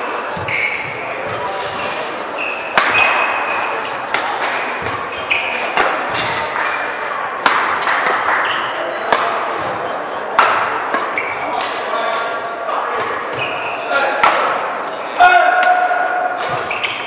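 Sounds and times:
shoes squeaking on court floor: 0.0 - 7.0, 7.7 - 9.8, 11.0 - 12.4, 13.0 - 14.0, 16.4 - 17.0
racket hitting shuttlecock: 2.6 - 6.8, 7.4 - 12.4, 14.2 - 14.6.

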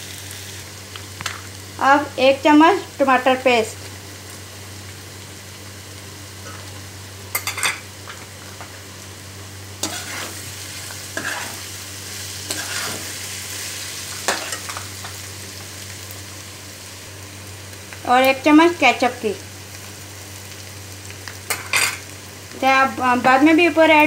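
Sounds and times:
food sizzling in pan: 0.0 - 24.0
metal spatula scraping pan: 9.8 - 10.4, 11.2 - 11.6, 12.5 - 13.1.

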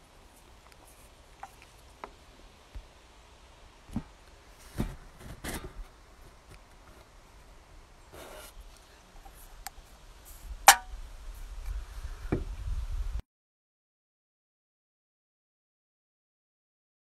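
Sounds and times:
sharp loud click: 10.7 - 10.9.

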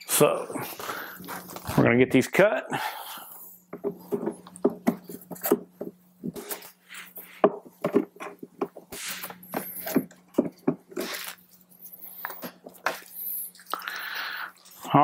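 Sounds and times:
steady low hum: 0.0 - 15.0
hands clicking and rustling wiring: 3.7 - 15.0.

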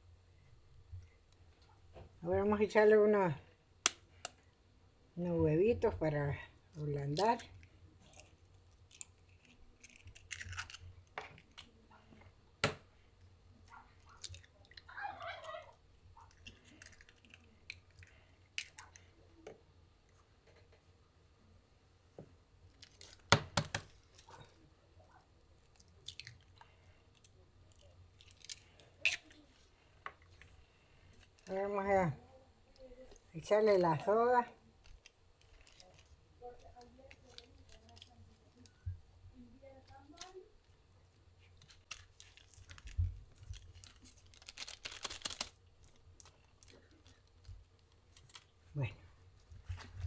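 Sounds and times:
eggshells cracking: 7.0 - 11.9, 16.2 - 19.1, 25.6 - 29.5, 41.6 - 48.6
plastic bag crinkling: 34.8 - 38.8, 41.5 - 48.7.

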